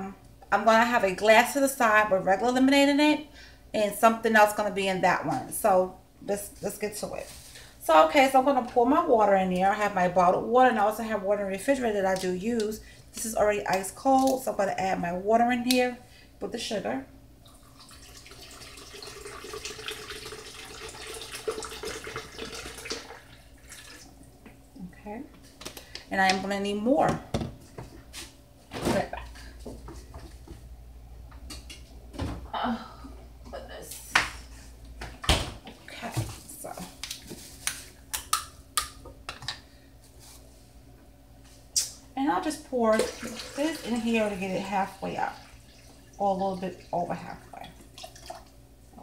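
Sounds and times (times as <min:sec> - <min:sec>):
water pouring into plastic pitcher: 0:17.4 - 0:24.1, 0:42.9 - 0:46.9, 0:47.8 - 0:48.5.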